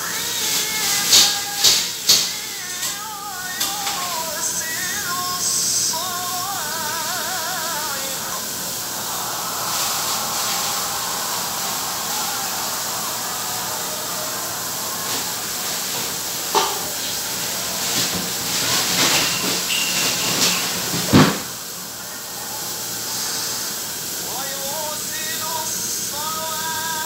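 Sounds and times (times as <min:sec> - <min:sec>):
steady hissing: 0:00.0 - 0:27.0
clattering: 0:17.8 - 0:21.5.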